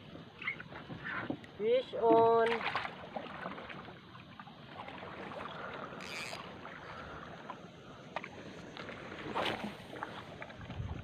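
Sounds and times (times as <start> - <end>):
water washing around boat: 0.0 - 11.0.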